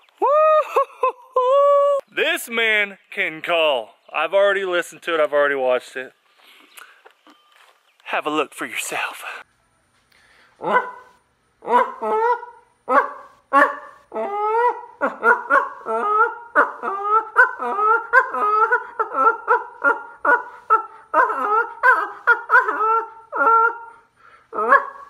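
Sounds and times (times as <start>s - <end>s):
man imitating goose honks: 24.5s - 24.9s.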